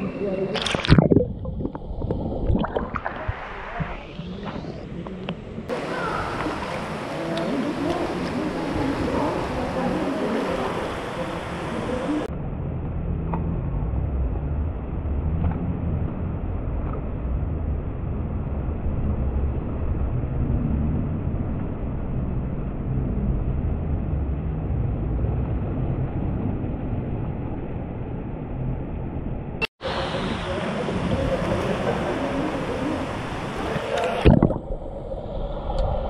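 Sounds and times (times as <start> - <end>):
muffled water sloshing and splashing: 0.6 - 4.8, 30.8 - 36.0.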